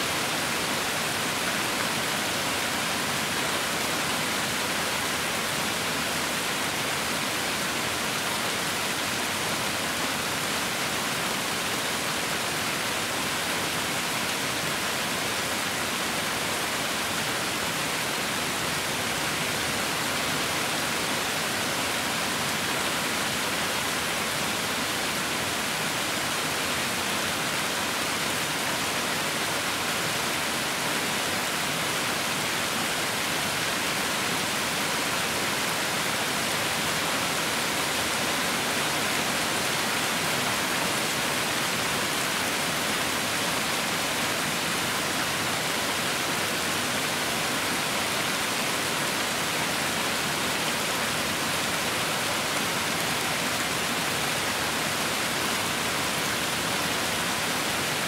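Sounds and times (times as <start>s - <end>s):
steady rain: 0.0s - 58.0s.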